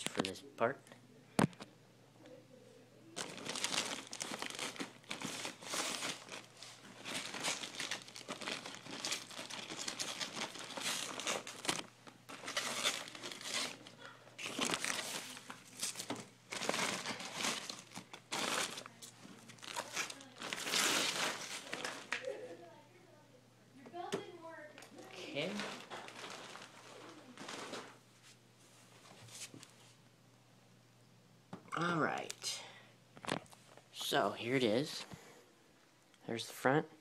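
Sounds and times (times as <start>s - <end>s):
plastic wrapping crinkling: 3.2s - 22.5s, 25.0s - 28.0s.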